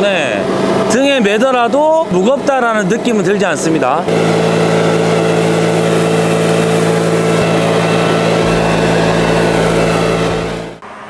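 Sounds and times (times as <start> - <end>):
leaf blower running: 2.8 - 11.0
deeper rumble: 4.0 - 10.8.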